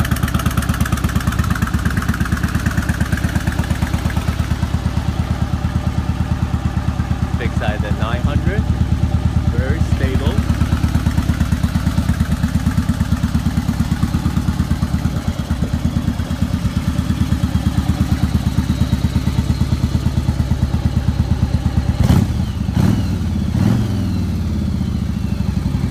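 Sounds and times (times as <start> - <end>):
motorcycle engine idling: 0.0 - 25.9.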